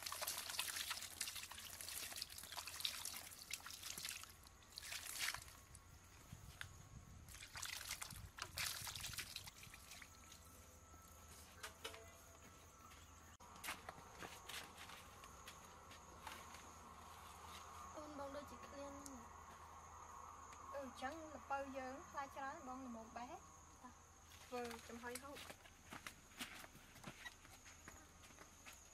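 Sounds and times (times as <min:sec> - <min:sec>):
water pouring and splashing: 0:00.0 - 0:05.8, 0:07.3 - 0:10.5.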